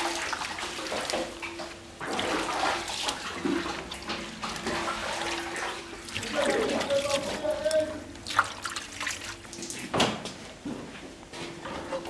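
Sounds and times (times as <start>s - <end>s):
wet curd splashing and squelching: 0.0s - 10.0s.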